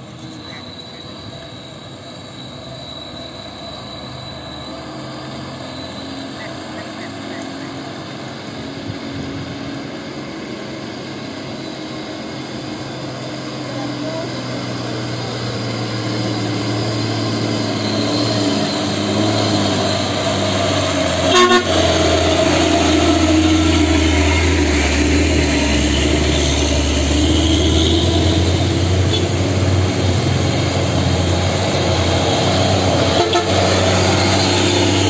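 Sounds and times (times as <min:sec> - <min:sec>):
dump truck diesel engine passing: 0:00.0 - 0:35.0
short horn toot: 0:21.2 - 0:23.0, 0:27.2 - 0:29.4, 0:33.0 - 0:33.8.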